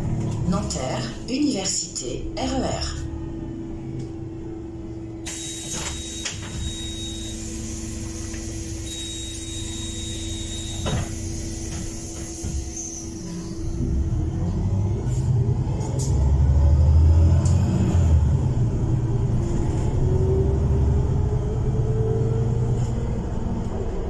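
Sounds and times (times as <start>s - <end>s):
bus interior hum and rumble: 0.0s - 24.0s
high beep: 5.4s - 7.6s, 8.8s - 10.9s.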